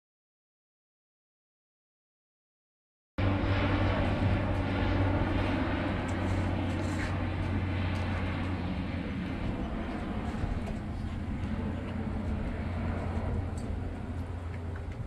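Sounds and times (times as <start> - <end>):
aircraft engine droning overhead: 3.2 - 15.0.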